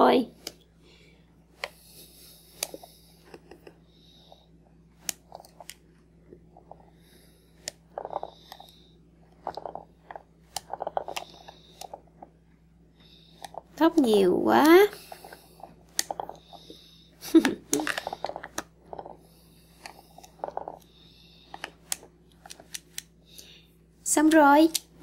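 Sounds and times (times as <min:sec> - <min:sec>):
toy scissors snipping: 0:24.3 - 0:25.0.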